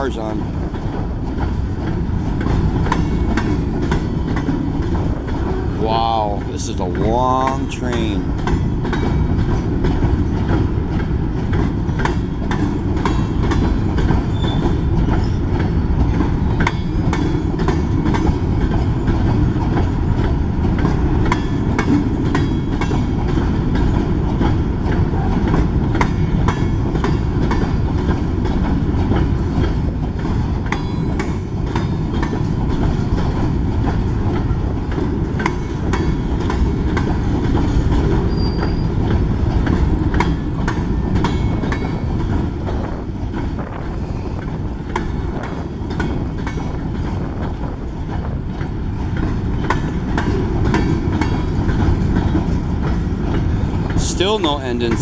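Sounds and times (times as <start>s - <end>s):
steel wheels rumbling on rail: 0.0s - 55.0s
wheels clicking over rail joints: 0.0s - 55.0s
faint wheel squeal: 14.3s - 15.4s, 38.2s - 39.0s.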